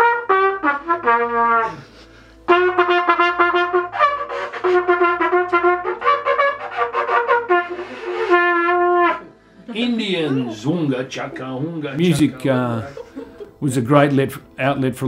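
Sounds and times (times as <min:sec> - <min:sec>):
solo trumpet: 0:00.0 - 0:09.5.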